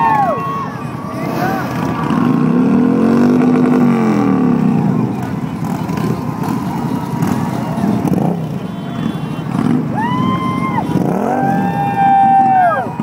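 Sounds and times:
motorcycle engine rumbling past: 1.1s - 8.5s.

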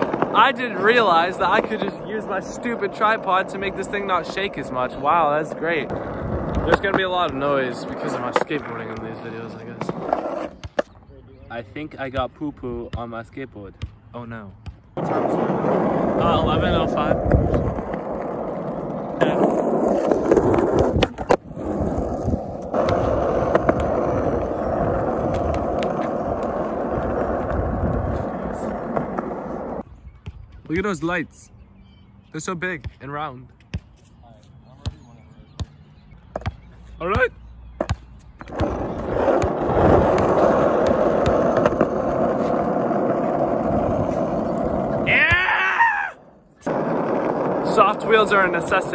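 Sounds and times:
skateboard wheels on rough asphalt: 0.0s - 11.0s, 15.0s - 29.9s, 37.7s - 48.9s
skateboard clacks: 15.0s - 29.8s, 38.5s - 45.2s.

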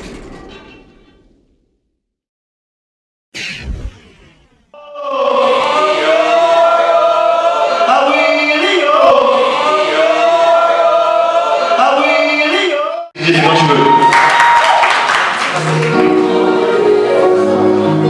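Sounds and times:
choir singing chant-like harmony: 4.8s - 12.6s, 15.6s - 18.0s.

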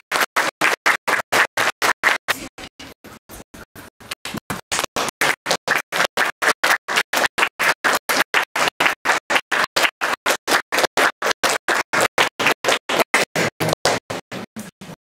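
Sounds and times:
audience applauding: 0.0s - 2.2s, 5.1s - 13.5s.

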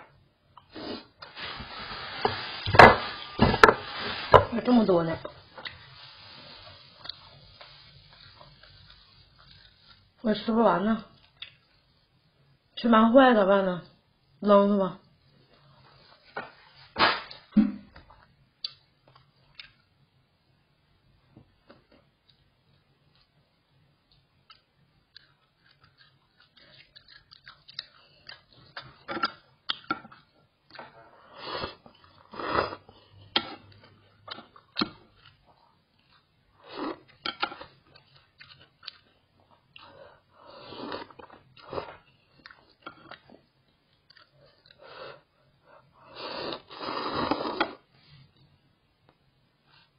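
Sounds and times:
person chewing: 24.1s - 44.9s
noodles being slurped: 46.2s - 47.8s.

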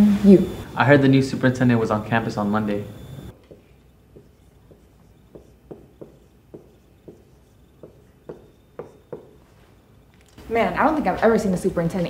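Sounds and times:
marker writing on whiteboard: 3.3s - 9.6s.

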